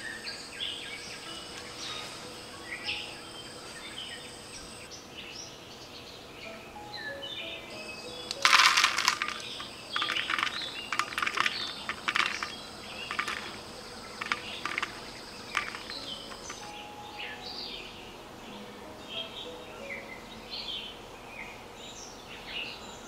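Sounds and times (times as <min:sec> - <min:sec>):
high insect drone: 0:00.0 - 0:05.0, 0:06.8 - 0:19.5
birds chirping: 0:00.0 - 0:23.0
stones clattering into clay pot: 0:08.3 - 0:16.7
seeds dropping onto stones: 0:08.3 - 0:16.8.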